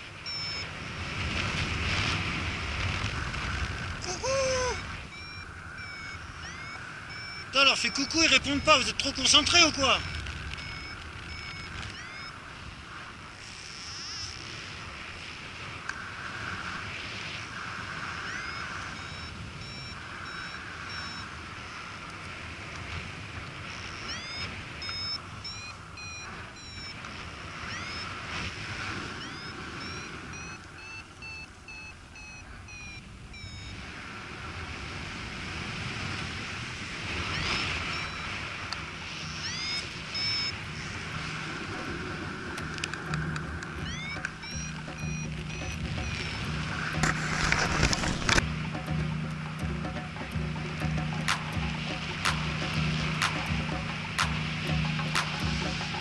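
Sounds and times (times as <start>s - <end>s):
wind on microphone: 0.0s - 56.0s
variometer beeping chirps: 0.1s - 0.8s, 4.6s - 12.4s, 13.7s - 14.4s, 17.9s - 22.1s, 23.8s - 33.9s, 36.7s - 56.0s.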